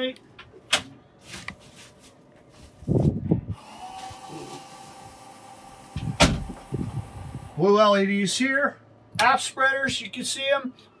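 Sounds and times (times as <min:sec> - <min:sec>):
electrical motor whine: 0:03.4 - 0:08.0.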